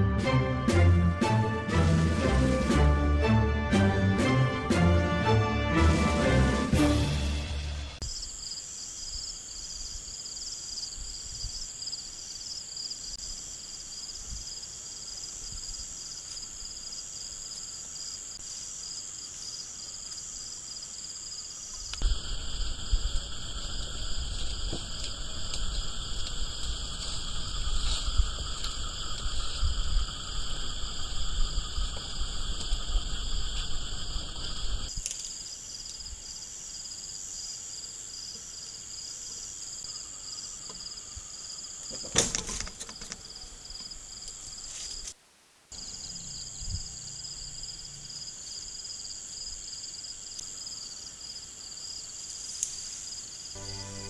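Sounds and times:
crickets and insects trilling: 8.0 - 54.0
low noise: 53.6 - 54.0.

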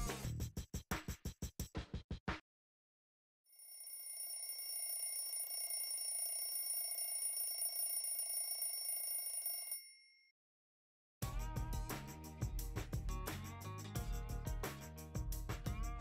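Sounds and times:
electronic timer alarm ringing: 3.5 - 10.3.

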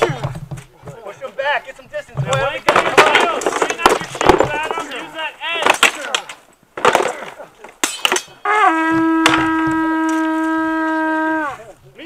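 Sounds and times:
weapons striking shields: 2.2 - 5.0, 5.6 - 8.4
horn blowing long note: 8.4 - 11.7.

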